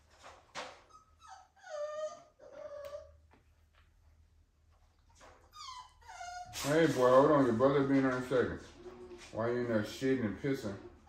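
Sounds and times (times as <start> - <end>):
puppy whining: 0.7 - 3.5, 5.0 - 7.2.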